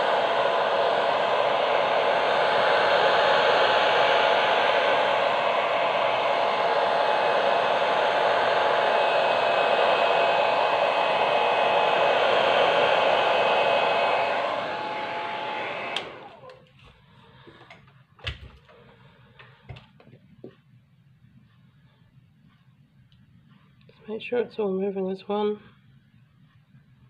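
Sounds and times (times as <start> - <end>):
hairdryer blowing: 0.0 - 16.7
hairdryer switch click: 15.0 - 16.5.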